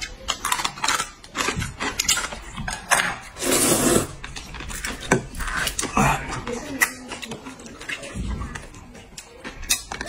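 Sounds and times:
chewing with wet clicks: 0.0 - 3.3, 4.2 - 10.0
people slurping noodles: 3.2 - 9.3.

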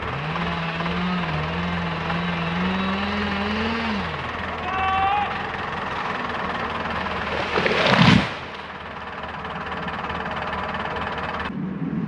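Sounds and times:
engine hum: 0.0 - 12.0
branches crackling: 5.3 - 9.3.

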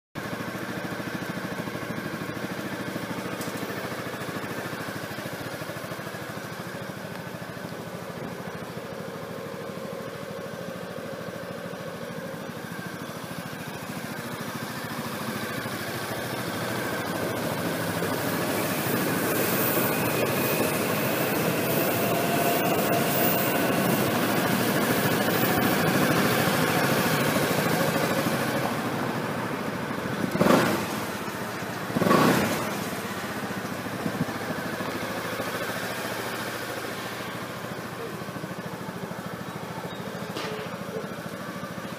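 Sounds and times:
scooter engine idling: 0.2 - 41.9
engine throttle blips: 10.9 - 41.9.

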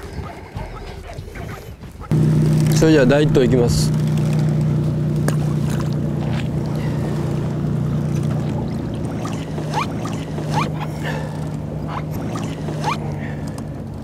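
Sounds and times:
boat engine humming: 0.0 - 14.0
short rising squeaks: 9.1 - 13.1.

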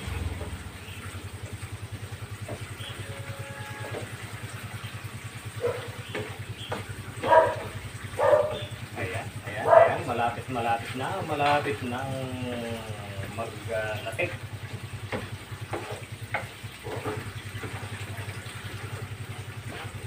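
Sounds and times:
coconut milk boiling in a pan: 0.0 - 20.0
spatula scraping a pan: 15.1 - 17.8, 19.6 - 20.0.

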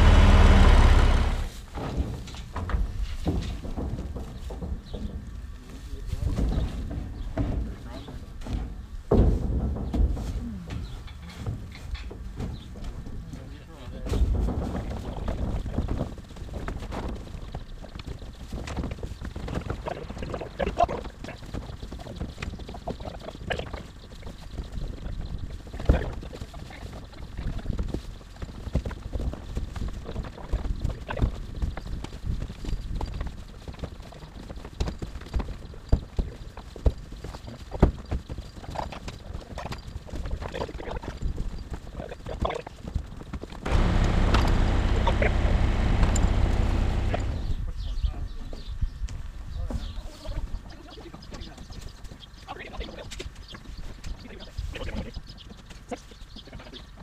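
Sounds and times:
straw bales rustling and knocking: 0.0 - 47.8
wooden knocks and thumps: 6.3 - 13.1
boots on wooden boards: 42.5 - 47.8
steady low rumble: 43.6 - 47.8
wind noise on microphone: 45.9 - 50.6.

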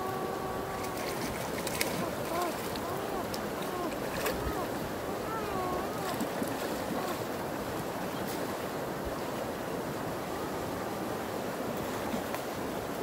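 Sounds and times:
wind buffeting microphone: 0.0 - 10.0
stream water rushing: 0.0 - 13.0.

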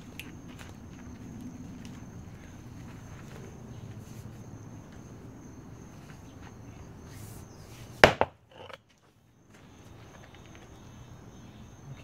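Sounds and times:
sledgehammer knocks on concrete: 8.0 - 8.4.

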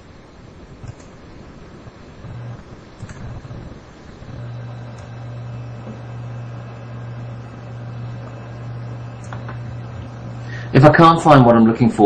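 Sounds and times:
faint hiss: 0.0 - 12.0
low electrical hum: 0.0 - 12.0
faint clicks: 0.8 - 1.2.

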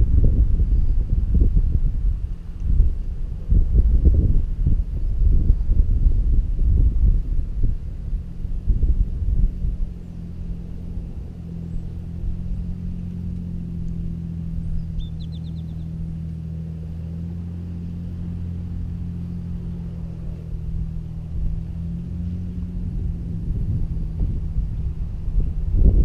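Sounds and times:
low engine hum: 0.0 - 26.0
bird trill: 14.6 - 16.0.

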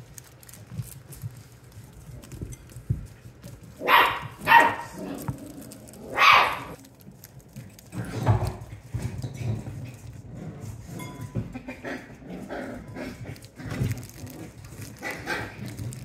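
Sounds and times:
puppy barking: 3.8 - 6.8.

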